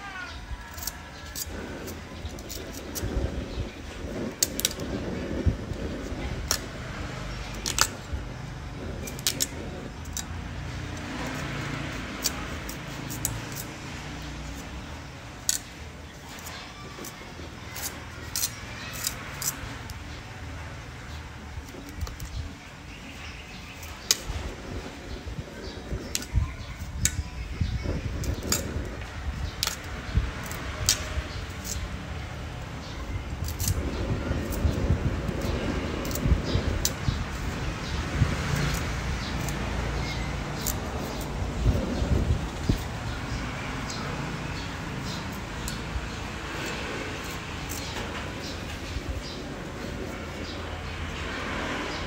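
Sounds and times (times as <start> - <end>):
cleaver cutting pumpkin rind: 0.2 - 20.2, 21.4 - 52.0
cleaver cutting on wooden board: 33.4 - 52.0.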